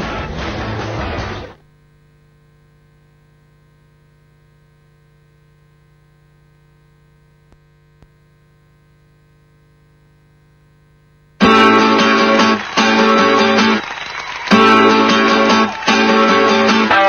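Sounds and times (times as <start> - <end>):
faint electrical hum: 1.6 - 11.5
strummed guitar: 11.4 - 17.0.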